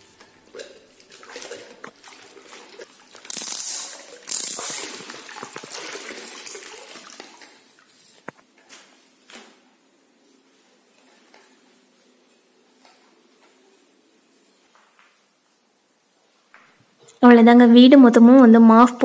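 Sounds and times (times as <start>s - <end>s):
mop sloshing in bucket: 0.5s - 8.0s
water streaming into bucket: 0.6s - 7.9s.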